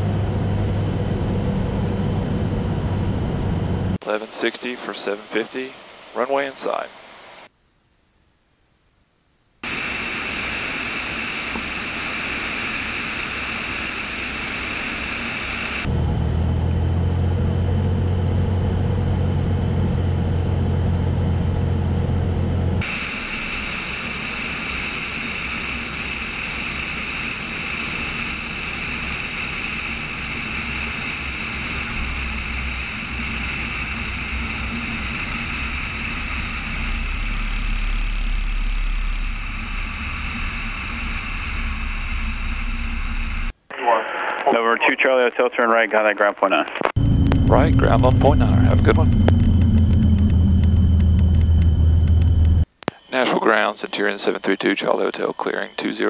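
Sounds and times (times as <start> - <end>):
wheels rumbling on runway: 0.0 - 4.0, 15.8 - 43.5, 46.9 - 52.8
aircraft engine drone: 0.0 - 45.8, 46.9 - 56.0
airflow rushing: 22.8 - 43.6, 47.0 - 52.7.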